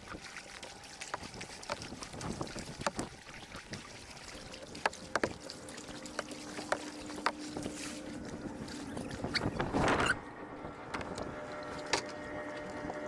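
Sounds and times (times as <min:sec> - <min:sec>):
water dripping: 0:00.0 - 0:09.4
paddle splashing in water: 0:00.0 - 0:10.1.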